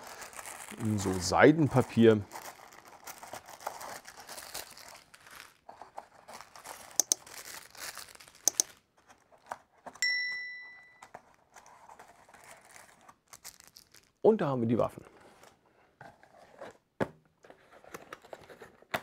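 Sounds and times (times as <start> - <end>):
tissue paper crinkling: 0.0 - 10.0, 11.1 - 14.2
sharp clicks: 7.0 - 7.2, 8.4 - 8.7
bell-like ding: 10.0 - 11.0.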